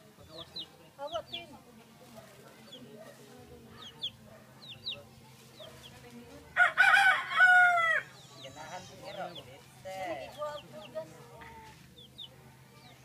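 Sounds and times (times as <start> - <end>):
chick peeping: 0.2 - 6.2, 8.1 - 13.0
rooster crowing: 6.6 - 8.1.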